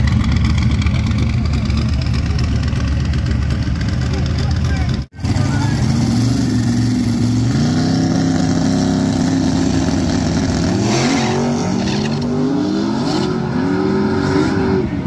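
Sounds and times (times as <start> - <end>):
drag racing engines revving: 0.0 - 15.0.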